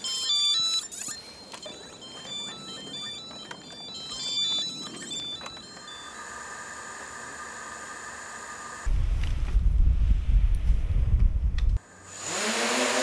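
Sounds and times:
short electronic beeps: 0.0s - 6.2s
steady high electronic tone: 0.0s - 8.8s.

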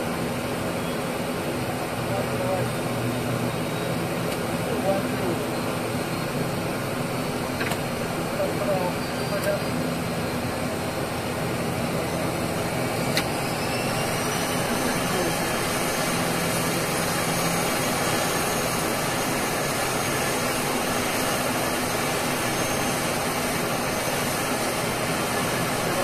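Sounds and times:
turboprop engines running: 0.0s - 26.0s
engine whine spooling up: 8.4s - 26.0s.

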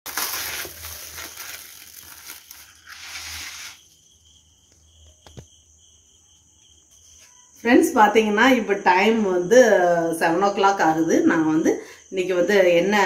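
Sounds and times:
plastic wrapping crinkling: 0.0s - 3.9s.

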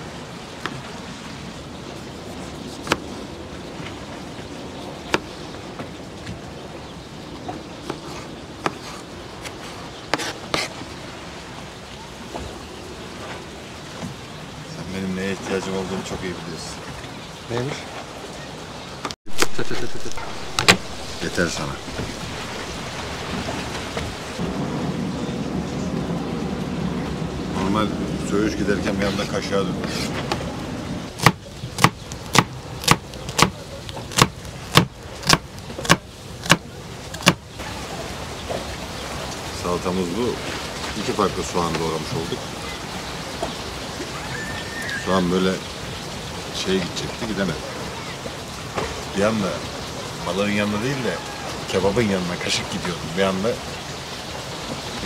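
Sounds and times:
sea and wind hiss: 0.0s - 33.0s, 34.4s - 55.0s
knife chopping on cutting board: 31.2s - 36.6s, 37.2s - 37.4s.

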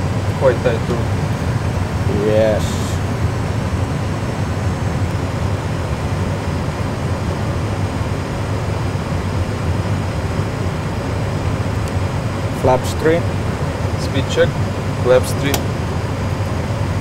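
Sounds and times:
aircraft engine low rumble: 0.0s - 17.0s.

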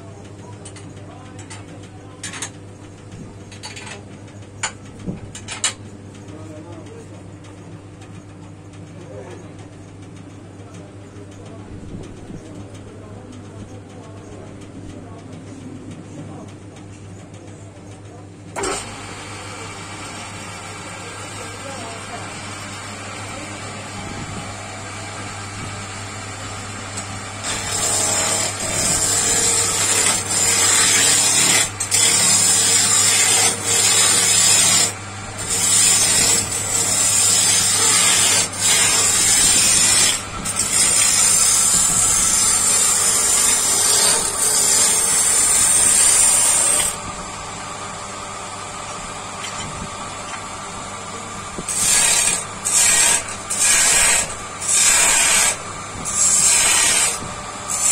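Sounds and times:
power tool motor hum: 18.6s - 47.1s, 51.6s - 57.9s.

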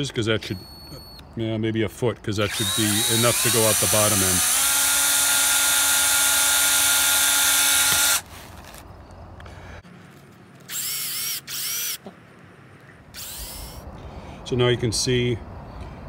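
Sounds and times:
cordless drill running: 2.5s - 8.8s, 10.7s - 12.0s, 13.2s - 13.8s.

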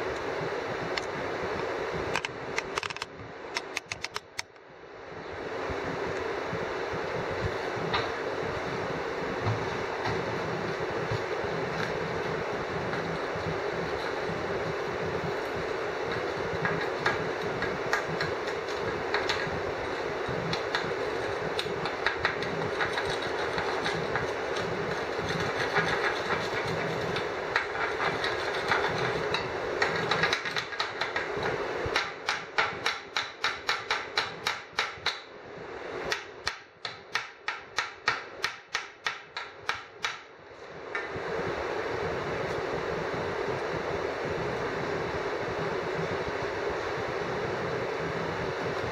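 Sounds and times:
sharp clicks: 2.2s - 4.6s
welding arc crackling and hissing: 5.5s - 35.1s.

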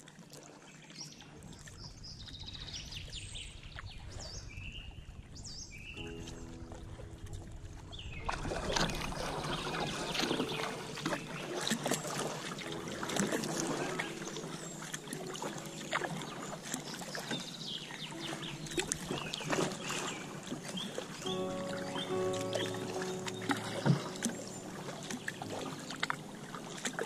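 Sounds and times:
paddle splashing water: 0.0s - 27.0s
bird chirps: 9.3s - 12.9s, 13.6s - 26.0s.

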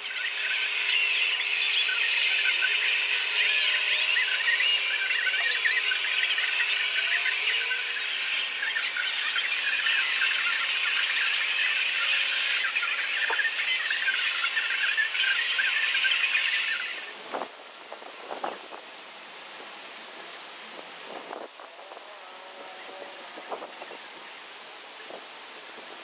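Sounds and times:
heat gun fan whine and hiss: 0.0s - 20.0s.

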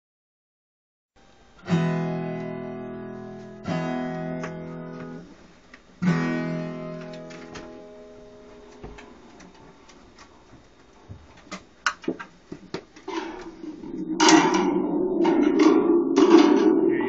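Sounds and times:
acoustic guitar strums: 1.6s - 5.4s, 6.0s - 9.6s.

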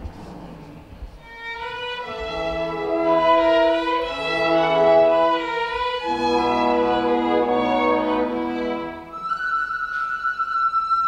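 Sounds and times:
orchestra with violins: 1.2s - 11.0s.

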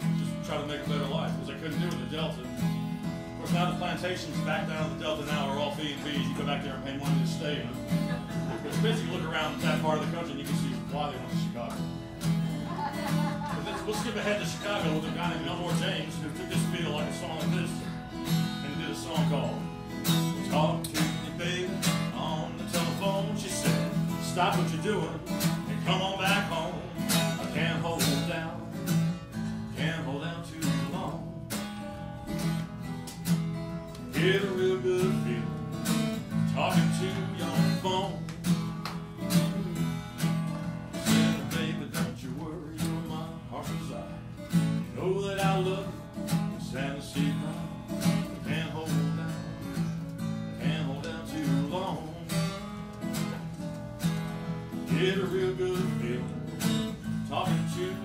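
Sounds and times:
acoustic guitar blues: 0.0s - 58.0s.

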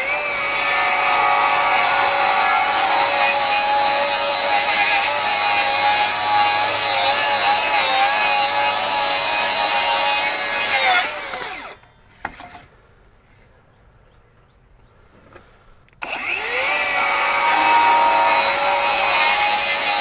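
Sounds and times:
saw blade spinning down: 0.0s - 10.0s, 16.1s - 20.0s
circular saw cutting wood: 0.0s - 11.8s, 16.0s - 20.0s.

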